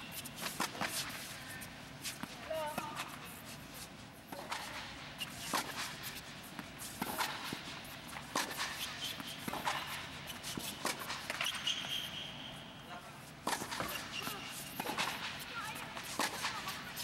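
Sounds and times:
shoes scuffing on court: 0.0 - 12.3
tennis balls struck by rackets: 4.2 - 12.1, 13.4 - 17.0.

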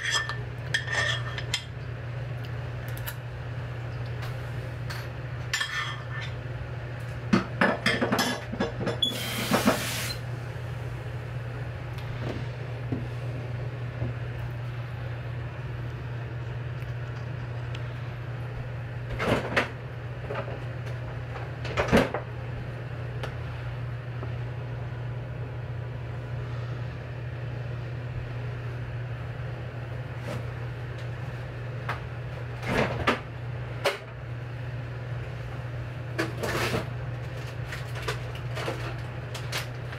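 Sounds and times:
utensils and dishes clinking: 0.0 - 1.7
steady low hum: 0.0 - 39.9.

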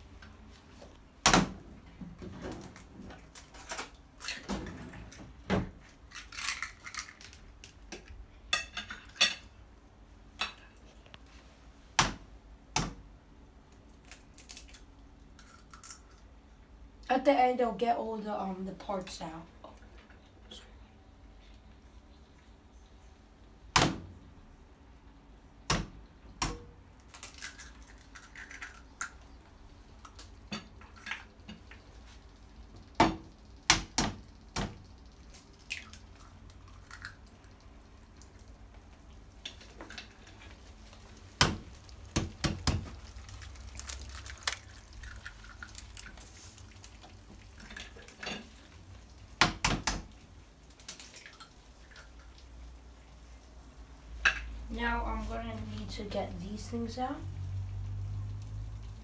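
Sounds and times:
eggshells cracking: 5.8 - 8.2, 13.7 - 16.3, 27.0 - 29.4, 33.6 - 38.7, 39.4 - 52.3.

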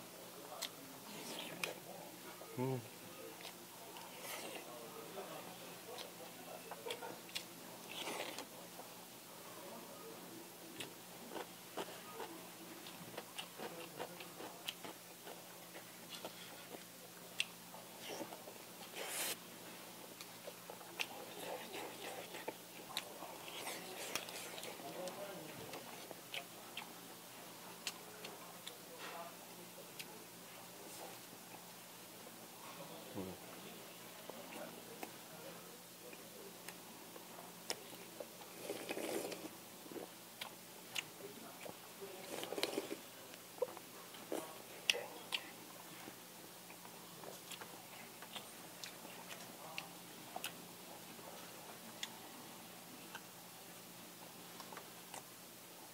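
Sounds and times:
wet chewing: 5.9 - 8.5, 10.8 - 19.4, 20.1 - 27.0, 36.1 - 45.6, 46.6 - 50.6.

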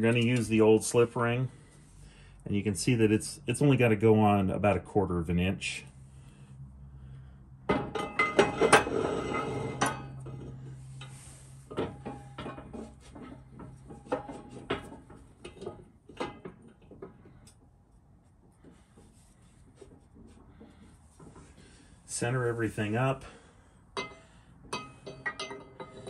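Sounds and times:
metal plates clanking and scraping: 7.7 - 17.4, 24.0 - 26.0.

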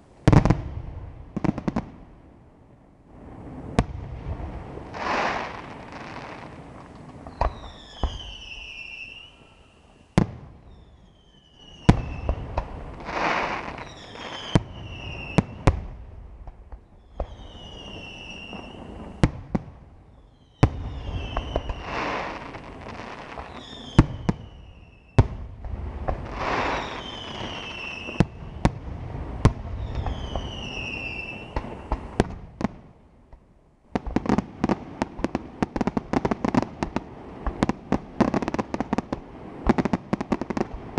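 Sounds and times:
firework crackling: 3.1 - 32.8
falling whistles and whooshes: 7.2 - 15.7, 16.8 - 19.3, 20.1 - 25.2, 26.2 - 28.7, 29.7 - 32.2.

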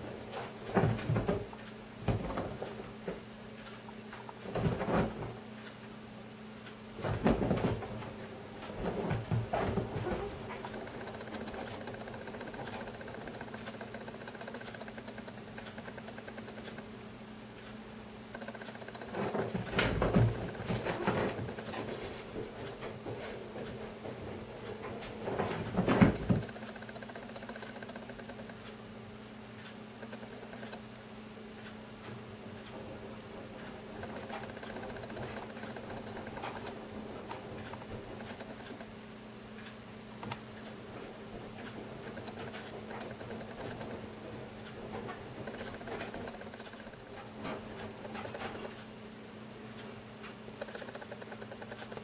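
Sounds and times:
cat paws scrabbling on cushions: 7.0 - 11.9.

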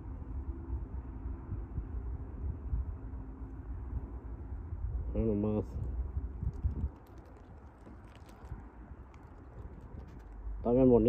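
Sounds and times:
low steady rumble: 0.0 - 11.0
light ticks and rustles: 5.8 - 10.8.

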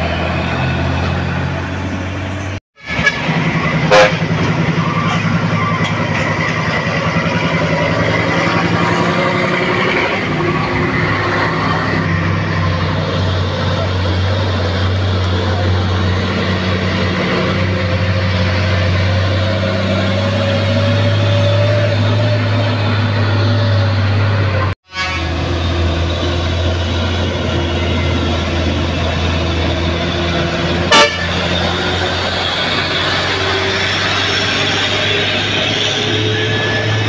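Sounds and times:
truck diesel engines droning: 0.0 - 37.0
truck horn toot: 2.8 - 5.9, 24.8 - 25.6, 30.7 - 32.0.

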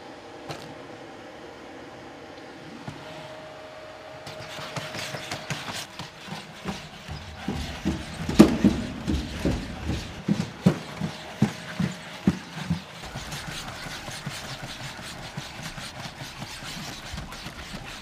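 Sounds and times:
faint mechanical hum: 0.0 - 18.0
robot feet knocking on wooden stairs: 4.7 - 18.0.

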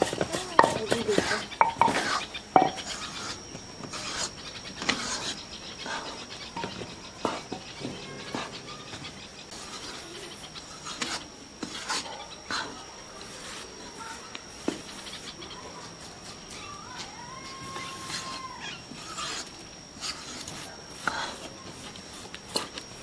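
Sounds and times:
metal spatula scraping flour: 0.0 - 7.5, 9.5 - 15.4, 17.8 - 23.0.

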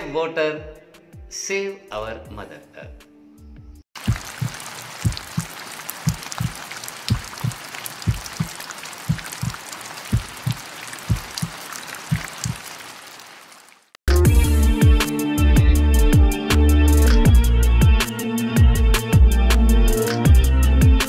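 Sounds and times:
water drops landing: 4.0 - 13.9
rain hiss: 4.0 - 14.0.

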